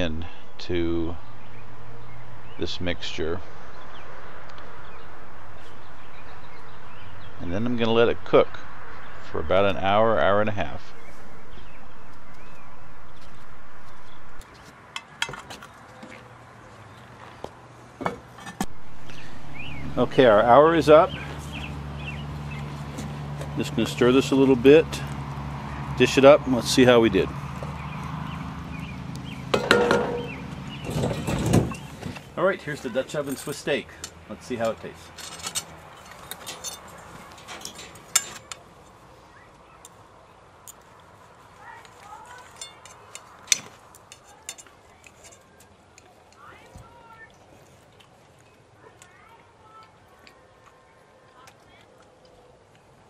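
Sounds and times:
cast-iron lid clanking on pot: 0:29.5 - 0:30.4
cutlery clinking on plates: 0:29.6 - 0:30.4
metal clinks: 0:35.2 - 0:38.6, 0:42.4 - 0:45.6.

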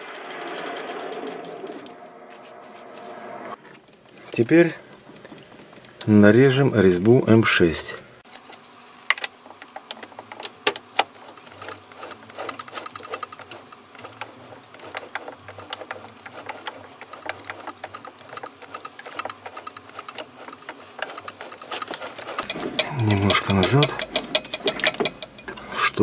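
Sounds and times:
lathe chuck clicking and ticking: 0:09.2 - 0:26.0.

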